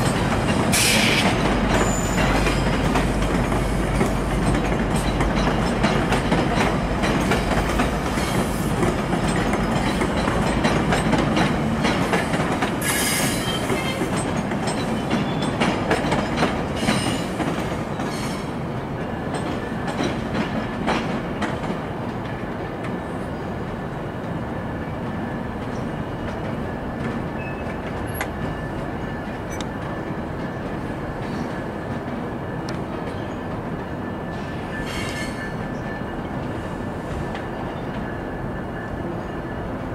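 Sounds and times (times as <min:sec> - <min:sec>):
wheels clacking over rail joints: 0:00.0 - 0:23.2
train wheel and rail rumble: 0:00.0 - 0:39.9
high wheel squeals: 0:00.7 - 0:02.8, 0:12.8 - 0:14.2.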